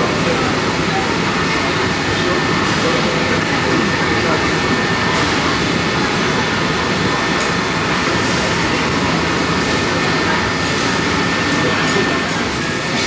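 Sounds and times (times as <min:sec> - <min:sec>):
murmur of diners: 0:00.0 - 0:13.0
ventilation fans: 0:00.0 - 0:13.0.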